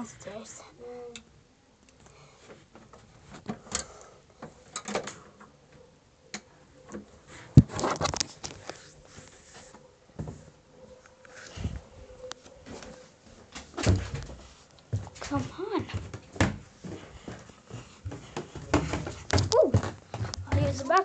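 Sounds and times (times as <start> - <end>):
tablet thumps and rustles: 7.5 - 8.8
footsteps going down stairs: 12.6 - 21.0.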